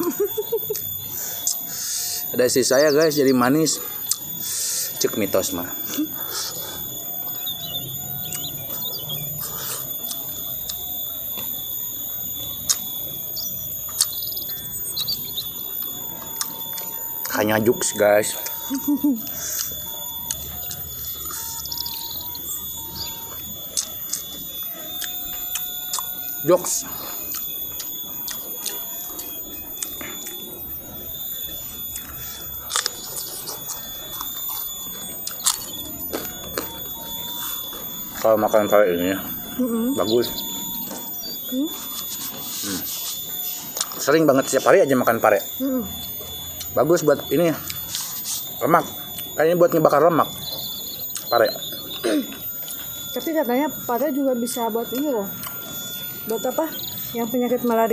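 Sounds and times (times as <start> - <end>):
small birds chirping: 0.0 - 57.9
steady high-pitched whine: 0.0 - 57.9
chewing and lip-smacking: 4.0 - 4.4, 6.0 - 17.4, 19.2 - 26.2, 27.0 - 38.3, 40.2 - 44.1, 50.4 - 53.2.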